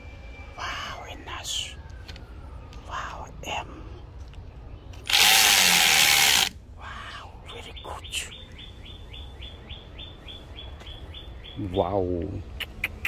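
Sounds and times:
drill bit grinding on steel: 0:05.1 - 0:06.5
bird chirping quickly: 0:07.5 - 0:13.0.

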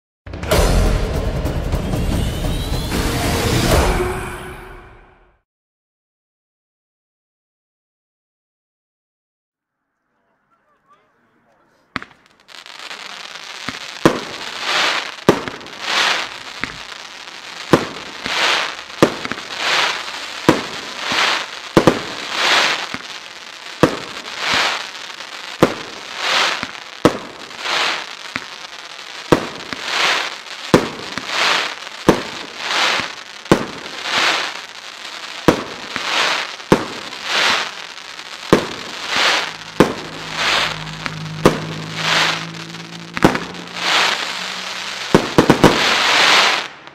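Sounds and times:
crackling firework stars: 0:09.8 - 0:46.9
firework launch bangs: 0:11.9 - 0:24.9, 0:25.6 - 0:28.6, 0:29.2 - 0:34.8, 0:35.4 - 0:46.9.

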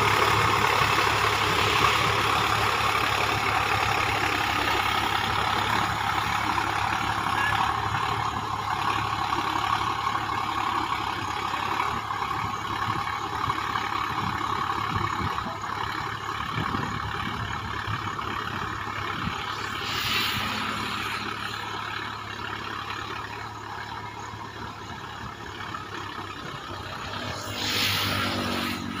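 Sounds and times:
tractor diesel engine running: 0:00.0 - 0:29.0
hissing swells: 0:19.2 - 0:22.1, 0:26.8 - 0:29.0.

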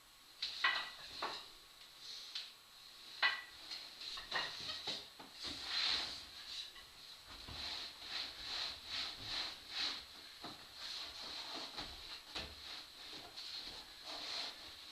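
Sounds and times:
wooden ladder rungs knocking: 0:03.2 - 0:05.3.

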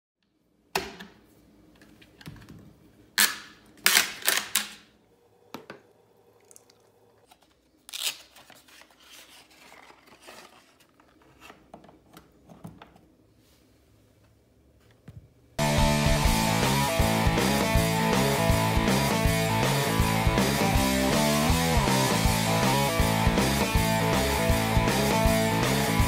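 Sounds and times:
paint pouring: 0:06.3 - 0:07.4.

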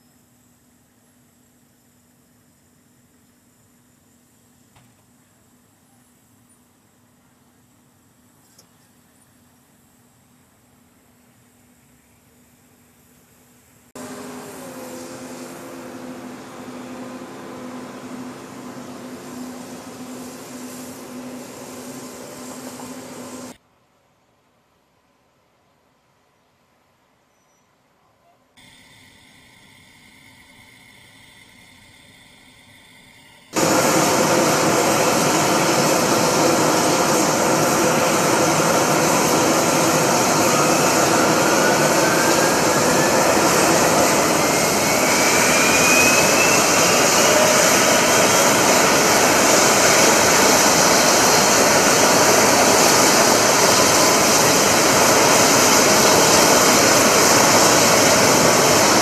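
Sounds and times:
engine whine rising in pitch: 0:14.0 - 0:23.6, 0:29.4 - 0:59.0
hovercraft engines roaring: 0:14.0 - 0:23.6, 0:29.0 - 0:59.0.

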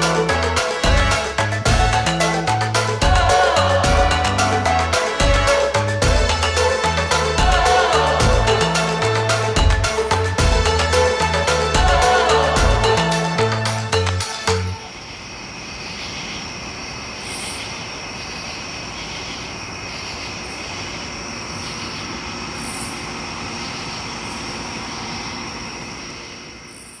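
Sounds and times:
high insect chorus: 0:14.8 - 0:27.0
insect buzzing calls: 0:14.8 - 0:27.0.

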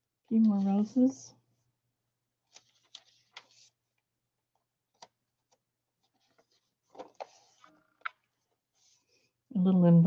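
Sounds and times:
paper pages turning: 0:02.4 - 0:09.1.

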